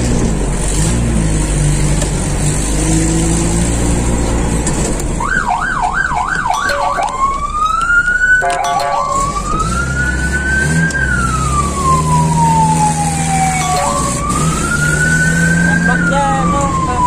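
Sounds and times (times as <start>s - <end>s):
vehicle engine and road rumble: 0.0s - 17.0s
electronic emergency siren: 5.2s - 17.0s.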